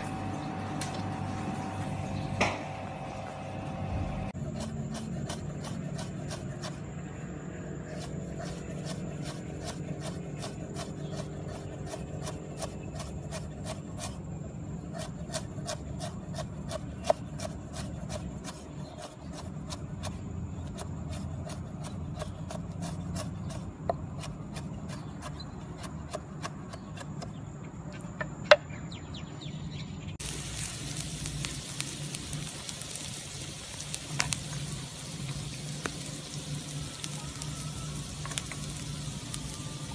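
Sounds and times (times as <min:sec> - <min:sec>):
aromatics sizzling in a wok: 0:30.2 - 0:39.9.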